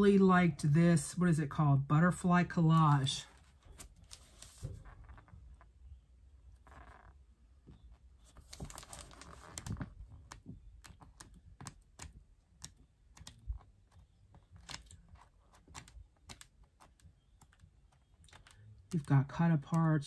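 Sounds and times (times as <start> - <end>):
paper pages flipping: 2.8 - 5.7, 8.2 - 19.1
paper rustle: 3.3 - 5.3, 8.2 - 11.0.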